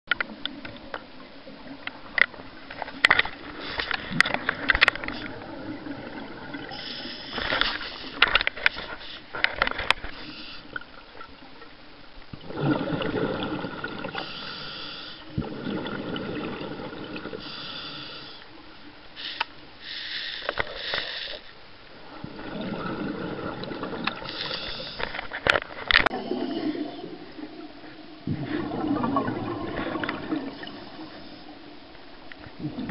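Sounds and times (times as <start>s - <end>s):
regulator hissing inhalations: 6.7s - 8.2s, 10.1s - 10.8s, 14.2s - 15.3s, 17.4s - 18.5s, 19.2s - 21.6s, 24.3s - 25.1s
bubbling exhalations: 12.4s - 14.3s, 15.3s - 17.5s, 22.1s - 25.2s, 26.1s - 31.4s, 32.5s - 32.9s.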